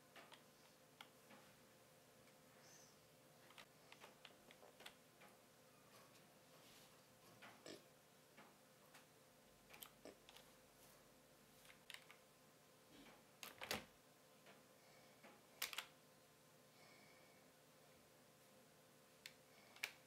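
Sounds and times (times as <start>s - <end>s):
faint steady hum: 0.0s - 20.0s
computer keyboard keystrokes: 15.6s - 15.9s.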